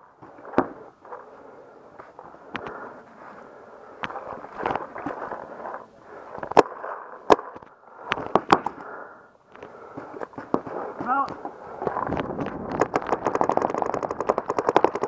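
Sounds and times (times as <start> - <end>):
paintball markers firing: 12.3 - 15.0.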